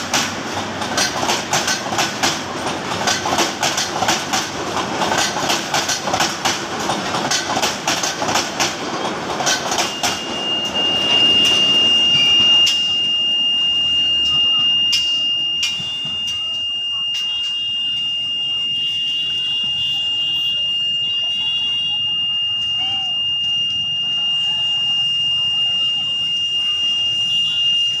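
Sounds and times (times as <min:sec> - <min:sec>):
train wheels clicking over rail joints: 0:00.0 - 0:10.8, 0:14.9 - 0:16.4
street and crowd noise: 0:00.0 - 0:28.0
high-pitched tone: 0:09.5 - 0:28.0.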